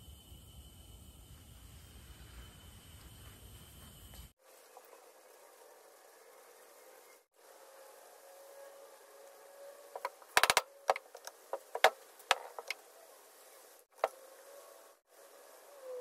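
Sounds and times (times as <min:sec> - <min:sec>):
faint steady hum: 0:00.0 - 0:16.0
wooden parts knocking together: 0:10.0 - 0:12.8.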